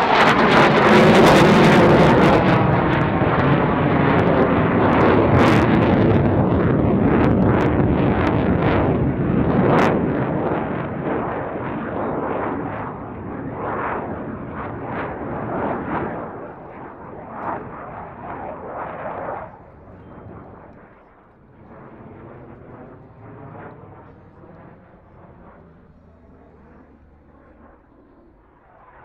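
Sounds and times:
loud crackling jet engine: 0:00.0 - 0:29.0.

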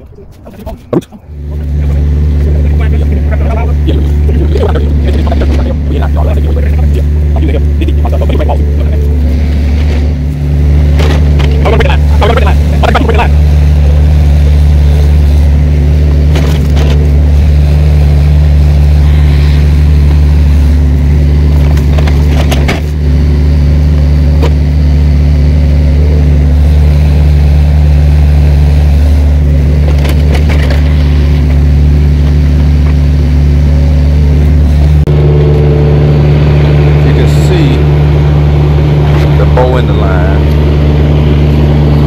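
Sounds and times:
excavator engine running: 0:00.0 - 0:42.0.

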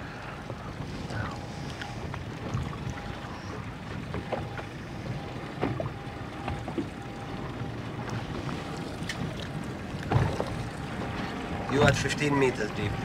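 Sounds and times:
water around boat: 0:00.0 - 0:13.0
wind: 0:00.0 - 0:13.0.

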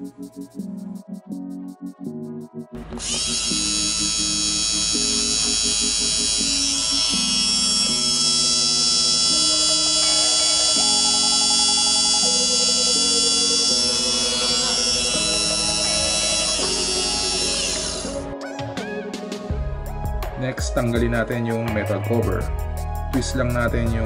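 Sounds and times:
background music: 0:00.0 - 0:24.0
small motor whining: 0:02.8 - 0:18.3.

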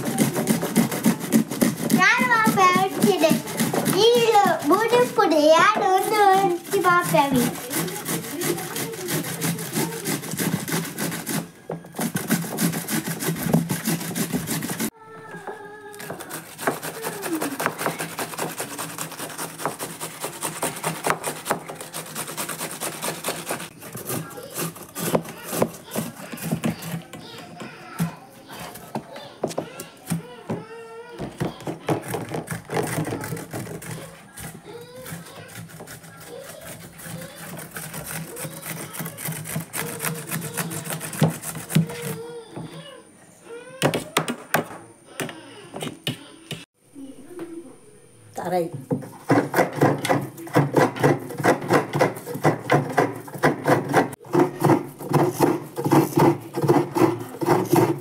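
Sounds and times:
cucumber scraping on grater: 0:00.0 - 0:14.9, 0:16.0 - 0:29.0, 0:31.4 - 0:42.4, 0:49.0 - 0:58.0.

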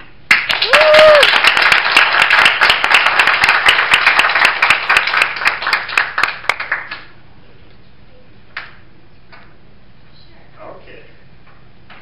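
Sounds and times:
audience applauding: 0:00.3 - 0:07.1.

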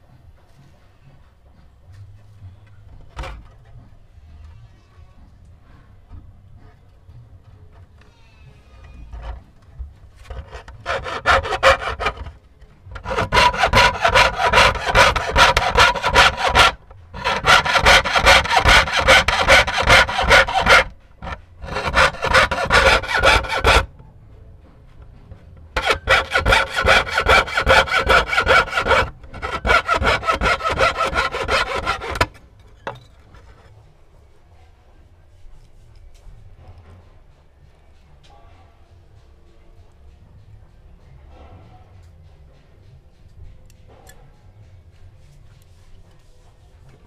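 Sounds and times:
fretsaw cutting brass sheet: 0:10.2 - 0:23.9, 0:25.8 - 0:32.4.

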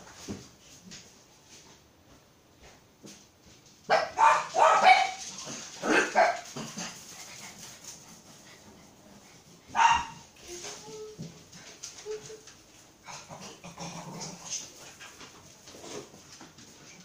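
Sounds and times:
dog barking: 0:03.9 - 0:05.2, 0:05.8 - 0:06.4, 0:09.7 - 0:10.2.

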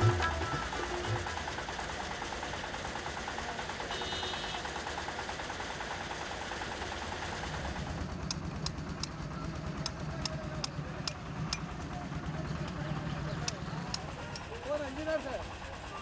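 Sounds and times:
hammers striking chisels: 0:08.2 - 0:12.0, 0:13.3 - 0:14.5.

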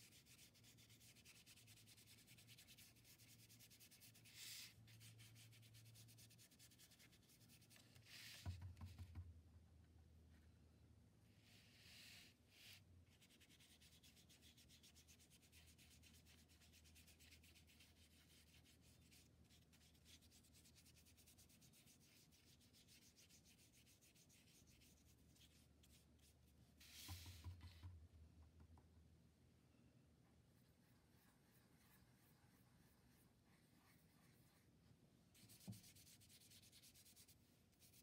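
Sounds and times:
paintbrush scratching on paper: 0:00.0 - 0:08.3, 0:13.1 - 0:27.5, 0:30.6 - 0:38.0.

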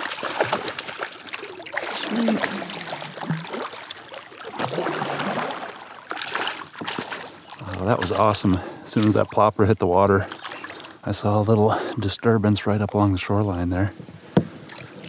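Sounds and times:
fish thrashing and splashing: 0:00.0 - 0:09.3, 0:10.2 - 0:11.0.

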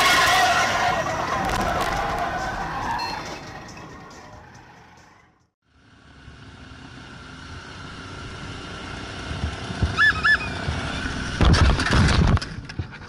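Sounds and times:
motorcycle engine: 0:00.0 - 0:13.0
horn beeping: 0:02.4 - 0:05.1.

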